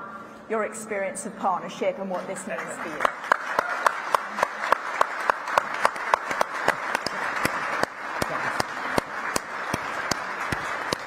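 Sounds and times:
audience applauding: 2.5 - 11.0
nearby sharp claps: 3.0 - 11.0.

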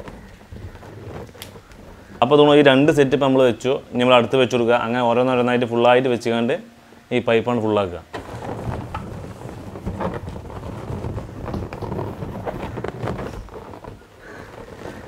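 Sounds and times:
balloons squeaking: 0.0 - 4.3, 8.1 - 15.0
low rumbling handling noise: 0.0 - 5.5, 8.0 - 15.0.

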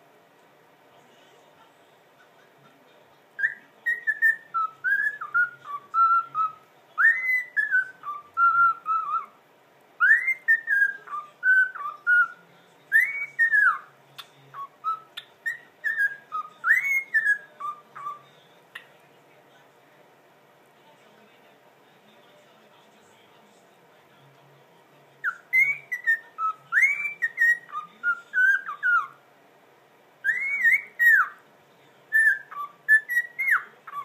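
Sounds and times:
cockatiel whistling a melody: 3.4 - 9.4, 10.0 - 18.9, 25.2 - 29.2, 30.2 - 31.4, 32.1 - 34.0.

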